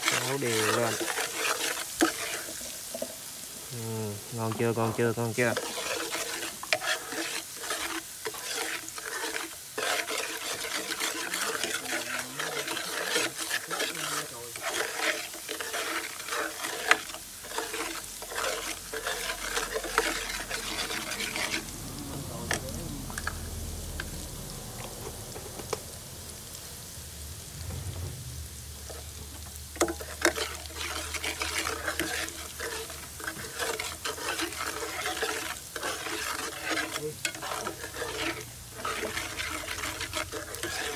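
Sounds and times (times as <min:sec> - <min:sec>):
metal spatula scraping a pan: 0:00.0 - 0:24.2, 0:28.9 - 0:40.9
oil sizzling: 0:00.0 - 0:40.9
low hum: 0:21.7 - 0:29.8.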